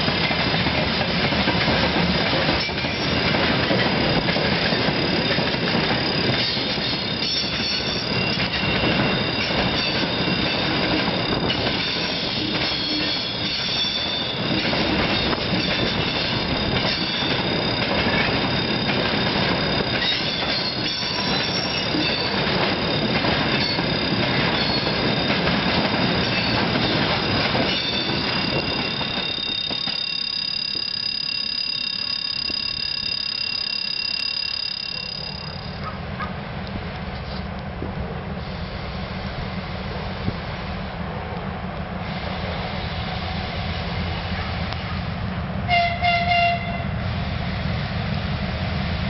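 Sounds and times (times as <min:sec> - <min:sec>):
train wheels rumbling: 0:00.0 - 0:49.0
high-pitched wheel squealing: 0:03.8 - 0:35.9.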